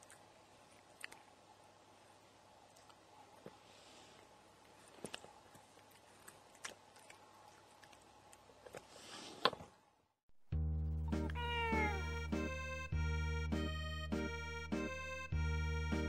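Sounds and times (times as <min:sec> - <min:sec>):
accordion music: 0:10.6 - 0:16.0
cat meowing: 0:11.2 - 0:12.2.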